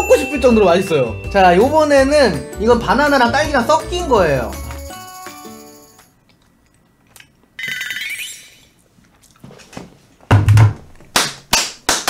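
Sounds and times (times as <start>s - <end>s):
ringing chime: 0.0s - 6.1s
hand claps: 11.1s - 12.0s.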